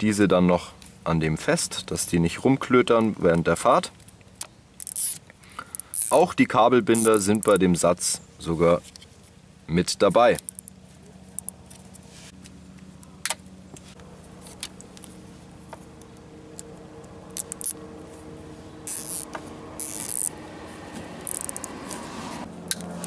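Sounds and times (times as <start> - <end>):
small handling clicks: 3.0 - 6.2, 10.3 - 10.8, 11.4 - 13.4, 16.0 - 17.8, 21.2 - 22.0
cable ties ratcheting zips: 4.0 - 6.3, 6.9 - 7.6, 10.3 - 12.0, 17.3 - 17.8, 18.9 - 20.4, 21.2 - 22.0.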